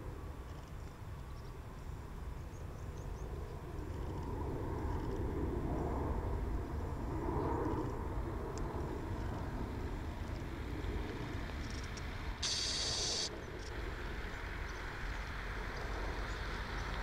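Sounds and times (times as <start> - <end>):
jet engines rumbling: 1.7 - 17.0.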